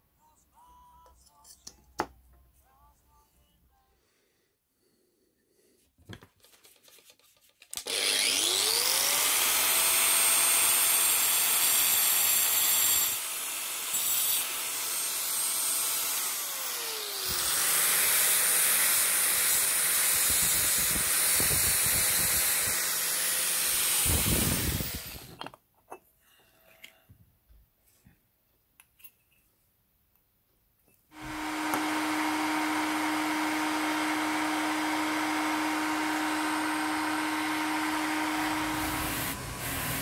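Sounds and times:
angle grinder motor whine: 0:07.9 - 0:11.0, 0:16.2 - 0:25.4, 0:31.2 - 0:40.0.

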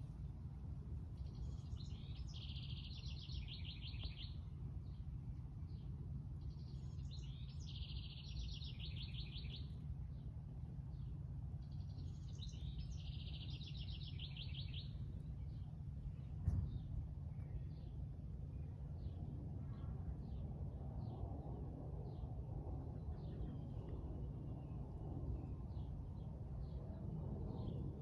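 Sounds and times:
steady low rumble: 0:00.0 - 0:28.0
songbird trilling song: 0:01.2 - 0:05.1, 0:06.4 - 0:10.3, 0:10.9 - 0:20.4.

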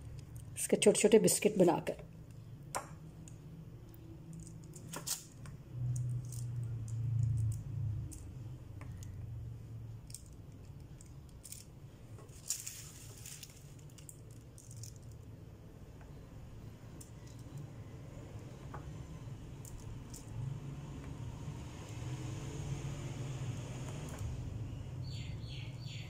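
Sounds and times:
paper crinkling: 0:12.3 - 0:14.1.

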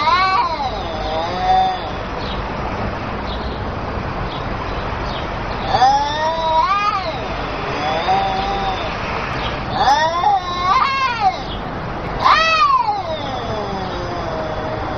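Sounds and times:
cat meowing: 0:00.0 - 0:02.1, 0:05.6 - 0:14.9
steady background hiss: 0:00.0 - 0:14.9.

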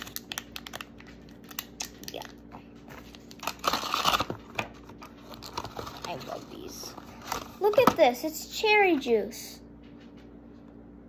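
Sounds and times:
plastic packaging crinkling: 0:00.0 - 0:08.0.

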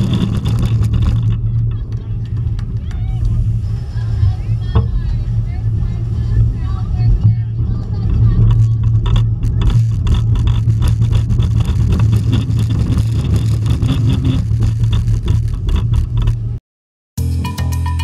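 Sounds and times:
rattles and clatter: 0:00.0 - 0:16.6
roller coaster rumbling on track: 0:00.0 - 0:16.6
music with guitar and drums: 0:17.2 - 0:18.0.

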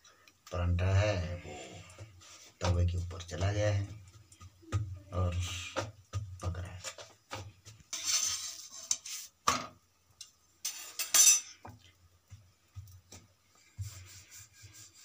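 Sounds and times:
metal utensil scraping iron pan: 0:07.9 - 0:09.3, 0:10.6 - 0:11.5.

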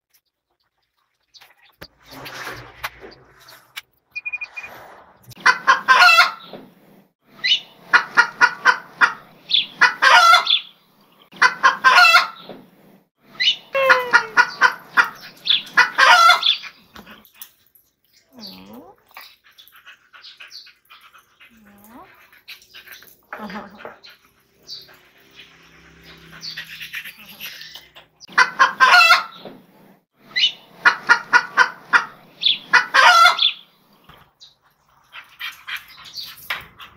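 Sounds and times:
chicken clucking: 0:05.3 - 0:06.6, 0:07.5 - 0:10.7, 0:11.4 - 0:12.6, 0:13.8 - 0:16.8, 0:26.4 - 0:29.6, 0:30.4 - 0:33.6.

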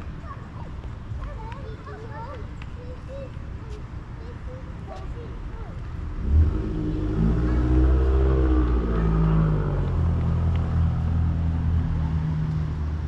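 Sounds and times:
vehicle engine running: 0:06.2 - 0:13.0.

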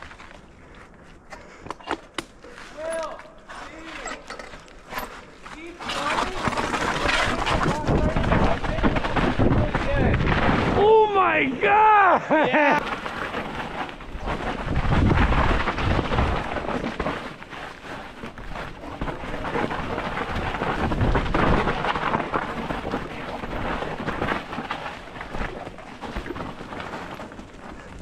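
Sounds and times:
wind buffeting microphone: 0:14.1 - 0:16.5.

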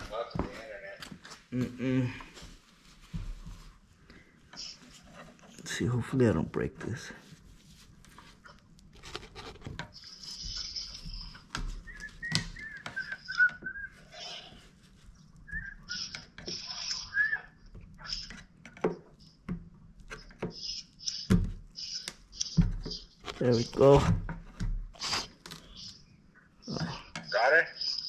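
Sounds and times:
person whistling: 0:11.8 - 0:14.5, 0:15.5 - 0:17.6.

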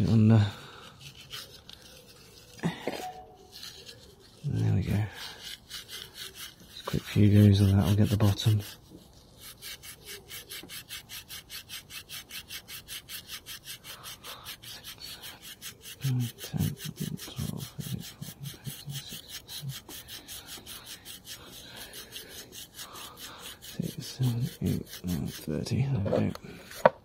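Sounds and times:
rapid scrubbing on metal: 0:00.0 - 0:02.6, 0:03.4 - 0:26.8.

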